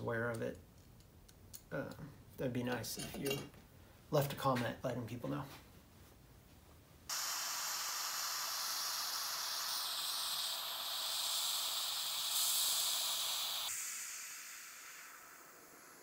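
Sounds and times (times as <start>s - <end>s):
brazing torch flame hissing: 7.1s - 16.0s.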